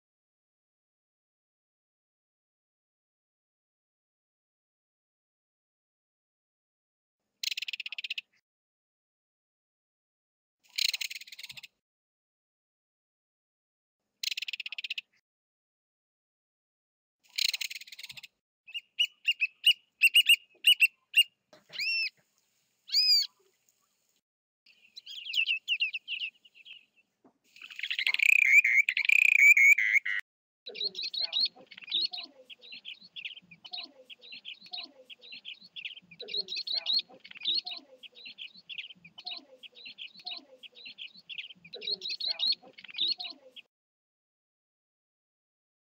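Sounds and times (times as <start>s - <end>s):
loud harsh bird call: 27.5s - 30.2s.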